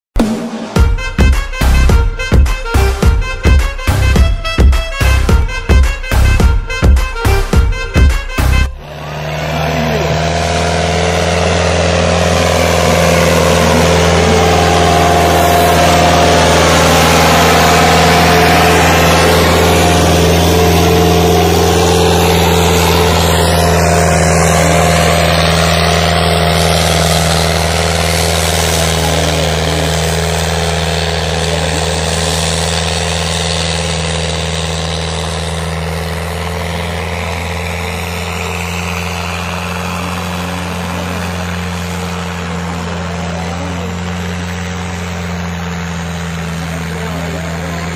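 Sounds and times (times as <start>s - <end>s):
tractor diesel engine under load: 0.2s - 47.9s.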